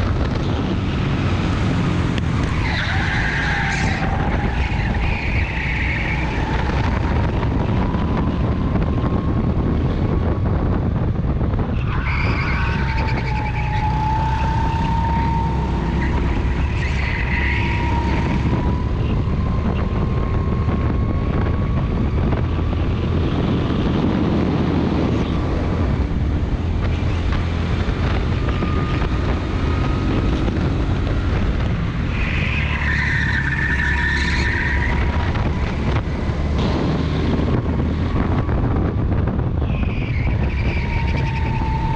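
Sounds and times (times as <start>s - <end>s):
wind rumbling on microphone: 0.0s - 41.9s
tyre squeals: 2.4s - 7.0s, 11.8s - 18.8s, 32.1s - 35.3s, 39.6s - 41.9s.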